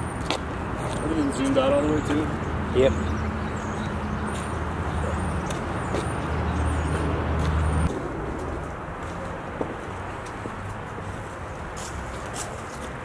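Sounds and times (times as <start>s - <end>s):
street noise: 0.0s - 13.0s.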